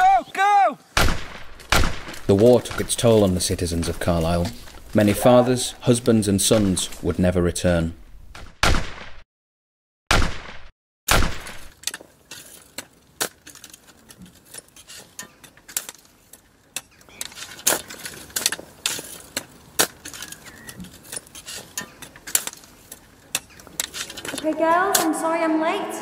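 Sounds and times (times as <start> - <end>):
trowel crunching and scraping soil: 1.4 - 7.2, 11.3 - 25.2
tool striking soil: 10.2 - 25.1.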